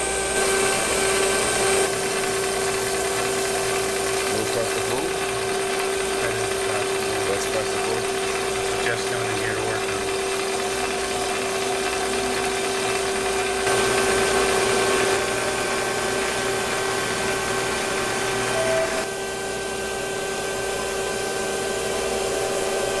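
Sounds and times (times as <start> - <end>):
grinding machine motor hum: 0.0 - 23.0
grinding wheel grinding metal: 0.0 - 23.0
coolant spray hissing: 0.3 - 18.4.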